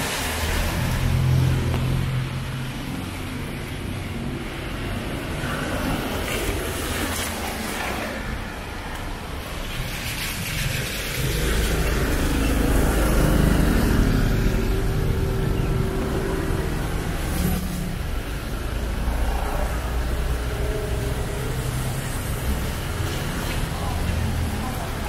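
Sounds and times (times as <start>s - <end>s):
vehicle engine passing by: 0.0s - 3.5s, 9.8s - 25.0s
steady traffic rumble: 0.0s - 25.0s.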